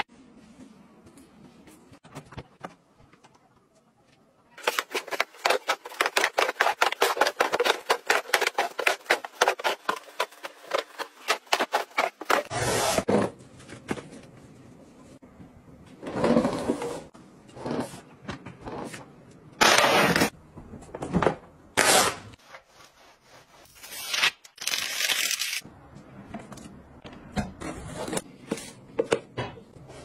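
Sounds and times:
box scraping across tiled floor: 16.0s - 18.0s.

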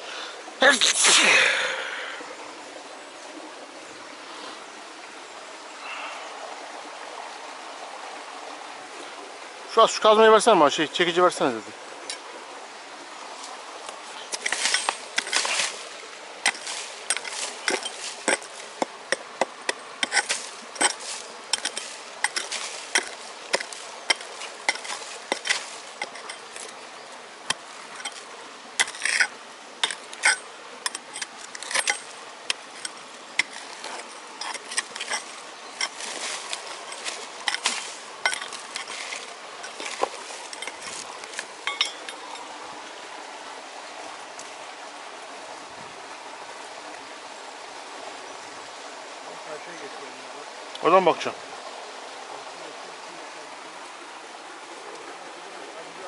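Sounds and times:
steady hiss: 0.0s - 56.0s
hammer striking rock: 16.4s - 26.7s.

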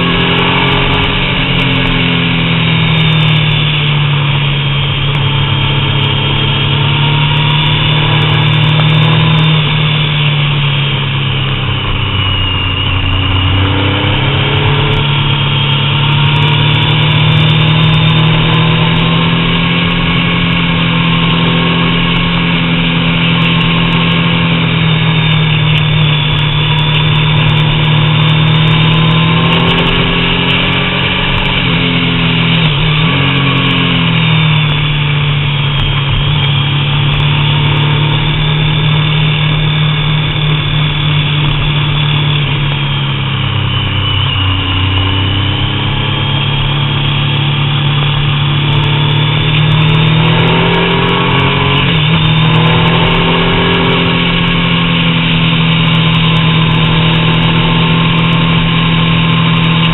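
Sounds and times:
motorcycle engine pulling: 43.7s - 59.9s.

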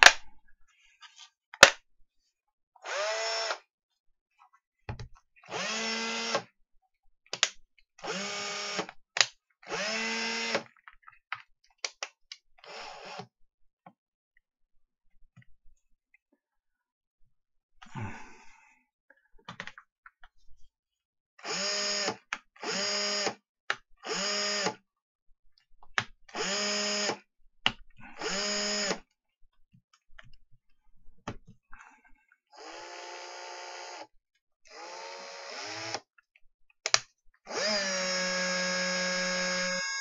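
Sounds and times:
cordless drill motor: 2.8s - 3.6s, 5.5s - 6.5s, 8.0s - 8.9s, 9.7s - 10.6s, 12.6s - 13.3s, 21.4s - 23.4s, 24.0s - 24.8s, 26.3s - 27.2s, 28.1s - 29.1s, 32.6s - 34.1s, 34.7s - 36.1s, 37.5s - 40.0s
drill clicks: 26.3s - 27.2s, 36.9s - 40.0s.

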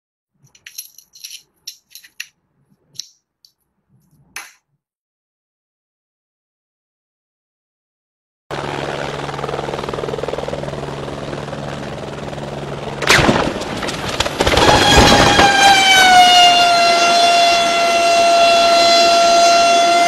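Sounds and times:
helicopter rotor and engine: 8.5s - 20.0s
turbine high whine: 8.5s - 20.0s
helicopter crashing into ground: 12.9s - 16.6s.

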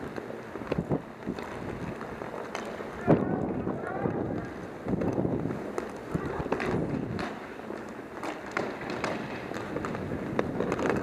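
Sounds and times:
inline skates striding: 0.0s - 11.0s
sticks and puck clacking: 0.0s - 11.0s.

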